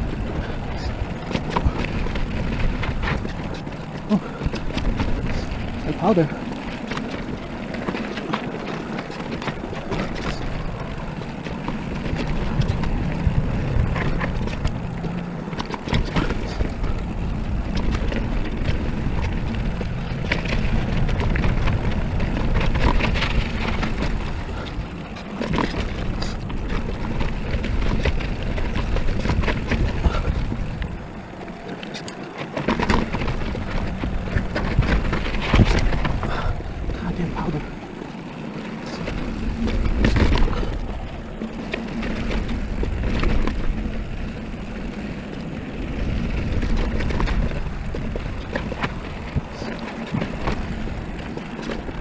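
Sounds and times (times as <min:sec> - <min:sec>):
bike rattling and clicking: 0:00.0 - 0:52.0
bike tyres on dirt and rock: 0:00.0 - 0:52.0
wind rushing on microphone: 0:00.0 - 0:52.0.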